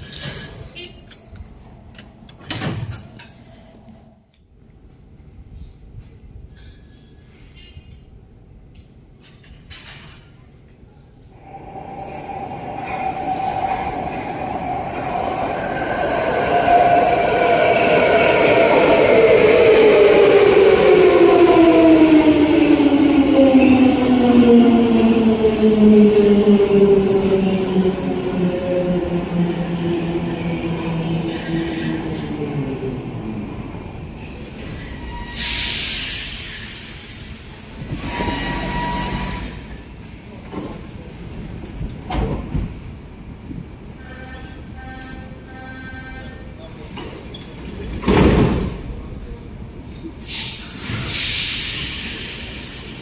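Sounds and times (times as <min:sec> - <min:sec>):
metro train rumble and whine: 0:00.0 - 0:53.0
wheels and brakes squealing: 0:34.2 - 0:36.2, 0:37.5 - 0:39.6.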